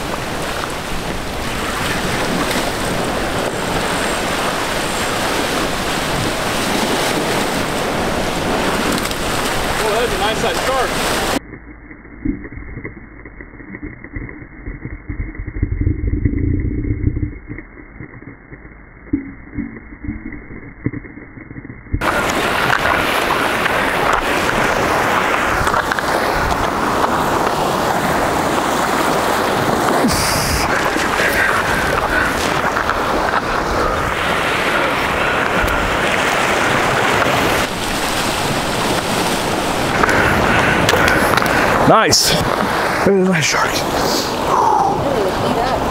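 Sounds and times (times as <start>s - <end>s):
wind on microphone: 0.0s - 9.8s, 22.0s - 43.0s
surf washing over rocks: 0.0s - 11.4s, 22.0s - 45.9s
muffled underwater water churning: 0.0s - 45.9s.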